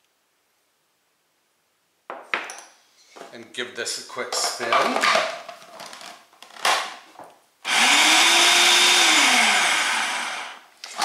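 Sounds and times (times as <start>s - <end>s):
food processor motor whirring: 7.6s - 11.0s.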